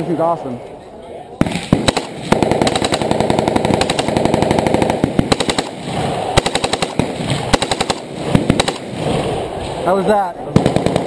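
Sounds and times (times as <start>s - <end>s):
automatic rifle bursts: 1.4s - 5.8s.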